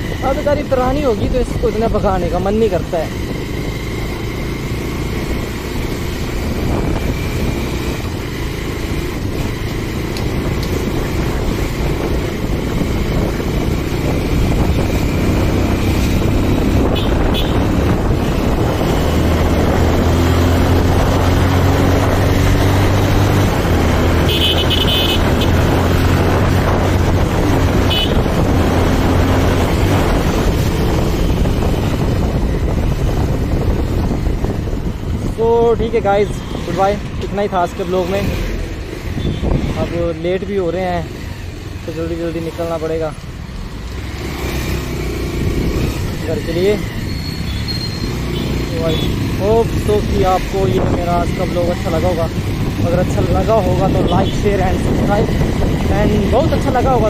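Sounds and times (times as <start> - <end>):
wind rushing over microphone: 0.0 - 47.2, 48.0 - 57.0
motorcycle engine running: 0.0 - 57.0
horn tooting: 16.8 - 17.8, 24.1 - 25.7, 27.8 - 28.4, 39.2 - 39.9, 47.1 - 49.3.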